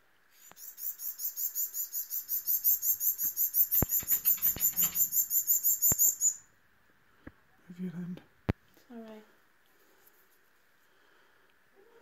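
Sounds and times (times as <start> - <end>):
baby birds chirping: 0.4 - 6.4.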